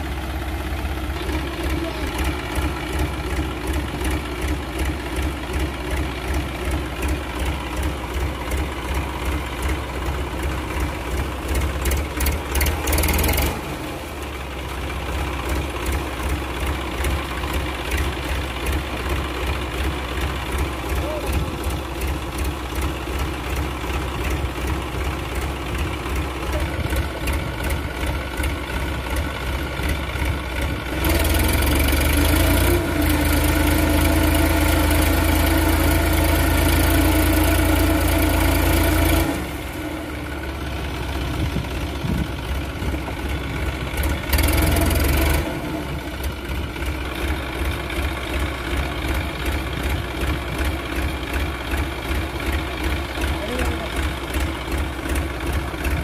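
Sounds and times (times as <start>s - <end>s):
tractor diesel engine knocking: 0.0s - 56.0s.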